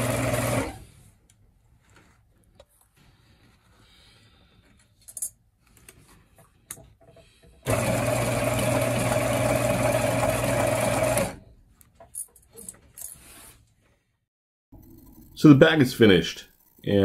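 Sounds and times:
sewing machine stitching: 0.0 - 0.9, 7.6 - 11.4.

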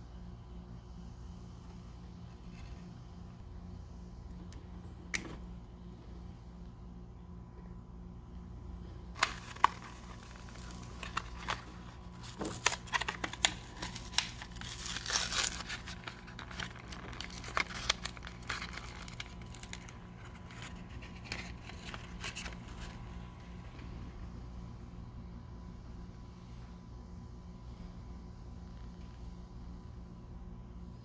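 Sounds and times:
plastic crinkling: 9.1 - 23.0
card tearing: 9.2 - 23.0.

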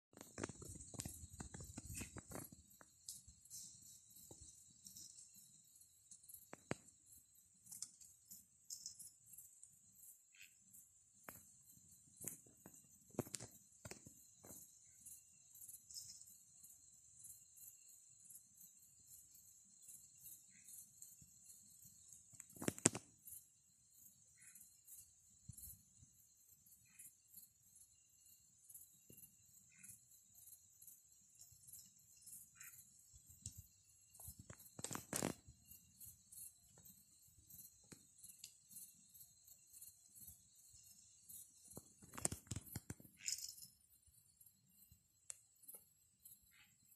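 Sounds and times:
crickets chirping: 0.1 - 46.9
sharp clicks and rustles: 0.2 - 5.2, 22.4 - 23.1, 34.2 - 35.5, 41.7 - 43.6
faint knocks and crunches: 34.2 - 35.5.

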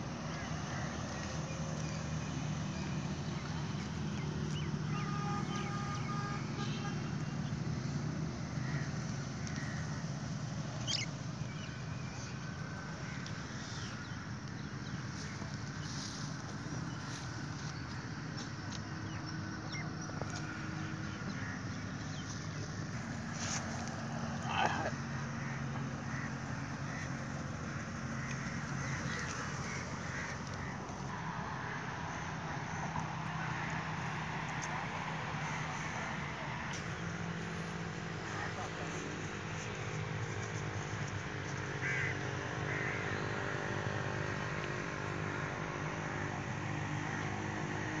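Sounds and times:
engine drone: 0.0 - 48.0
flock of birds calling: 7.4 - 31.1, 33.0 - 43.5.

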